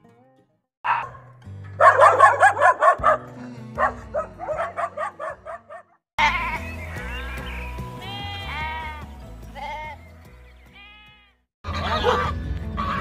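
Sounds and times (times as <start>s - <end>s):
dog yapping: 0.9s - 1.2s, 1.8s - 3.2s, 3.8s - 6.0s
background music: 0.9s - 13.0s.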